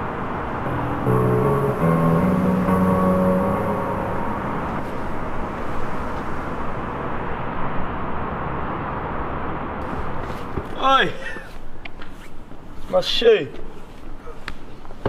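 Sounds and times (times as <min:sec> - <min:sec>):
outdoor rumble and hiss: 0:00.0 - 0:15.0
music notes: 0:00.5 - 0:05.5.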